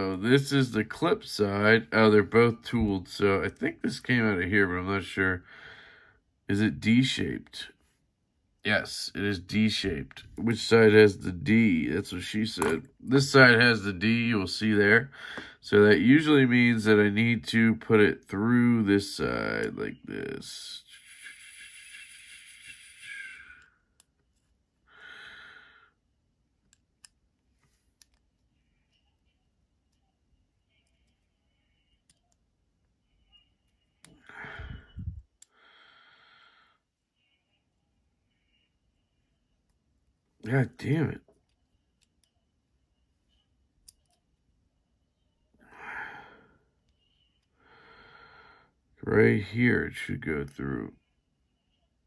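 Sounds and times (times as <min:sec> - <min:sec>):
person sighing: 0:34.2 - 0:36.5, 0:45.6 - 0:46.6.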